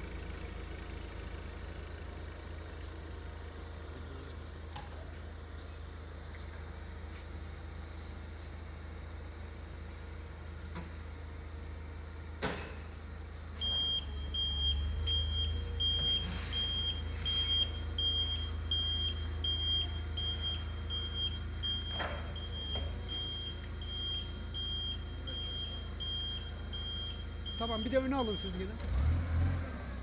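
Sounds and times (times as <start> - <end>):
forklift engine hum: 0.0 - 30.0
forklift warning beeper: 13.6 - 29.1.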